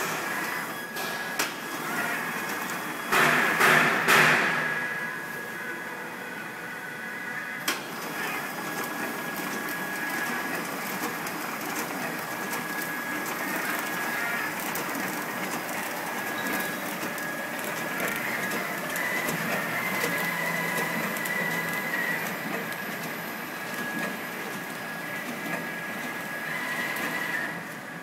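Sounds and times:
packing machine running: 0.0 - 28.0.

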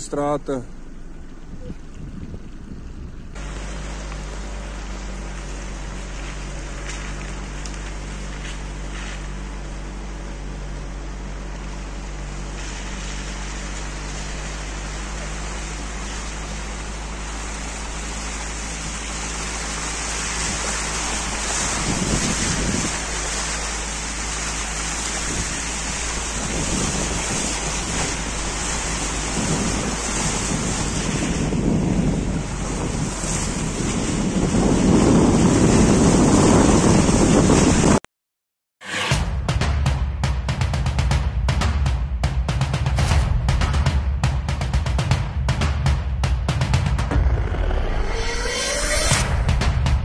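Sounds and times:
tyres splashing through puddles: 0.0 - 37.8
low engine hum: 0.0 - 38.0, 39.2 - 50.0.

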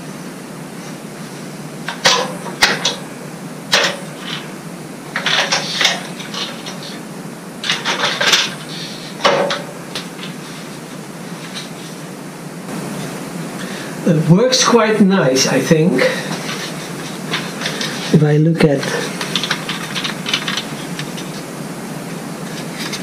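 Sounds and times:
steady low hum: 0.0 - 23.0
hands handling scroll saw parts: 19.1 - 21.4.

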